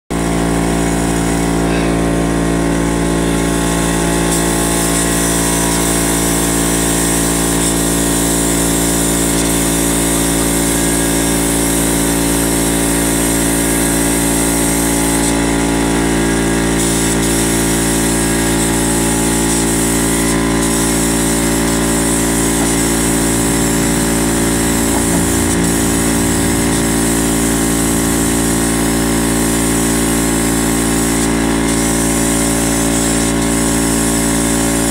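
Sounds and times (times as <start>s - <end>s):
air compressor running: 0.1s - 34.9s
air hissing: 0.8s - 34.9s.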